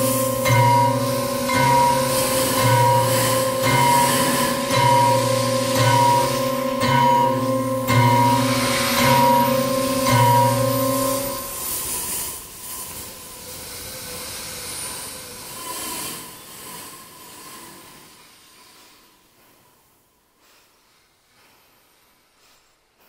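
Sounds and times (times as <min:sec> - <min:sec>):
airy hissing noise: 0:00.0 - 0:06.8, 0:07.5 - 0:19.4
faint held tone: 0:00.0 - 0:11.6.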